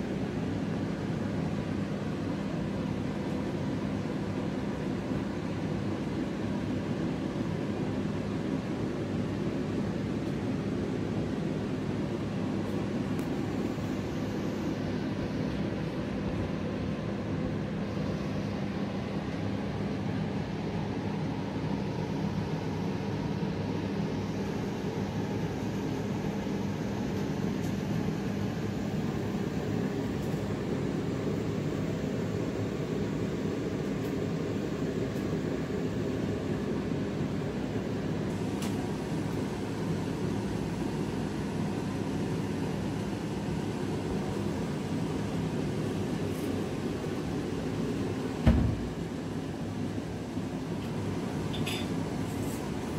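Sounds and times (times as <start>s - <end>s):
steady mechanical hum: 0.0s - 52.9s
thump: 48.4s - 48.9s.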